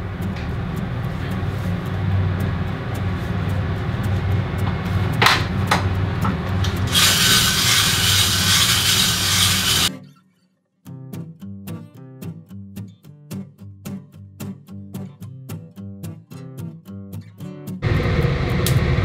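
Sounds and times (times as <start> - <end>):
range hood fan humming: 0.0 - 9.9, 17.8 - 19.0.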